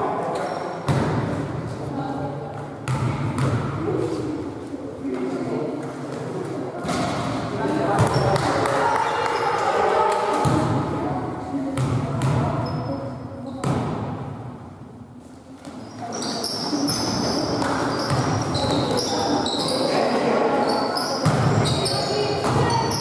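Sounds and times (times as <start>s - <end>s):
basketball bouncing on court: 2.8s - 3.7s, 7.9s - 8.8s, 17.4s - 19.1s
sneakers squeaking: 7.9s - 9.7s, 11.8s - 14.0s, 15.6s - 23.0s.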